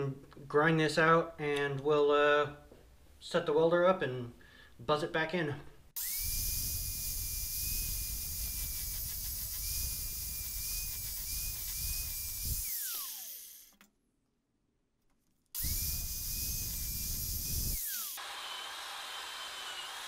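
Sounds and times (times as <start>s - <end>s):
angle grinder whining: 6.0s - 13.8s, 15.6s - 20.0s.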